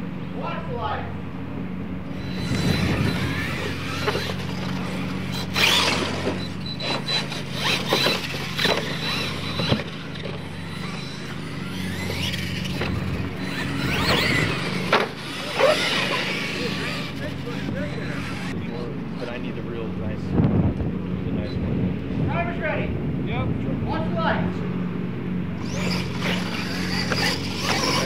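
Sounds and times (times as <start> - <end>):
low hum: 1.1 - 22.3
toy truck motor whine: 2.0 - 18.6, 25.6 - 28.0
short squealing revs: 2.0 - 19.5, 25.5 - 28.0.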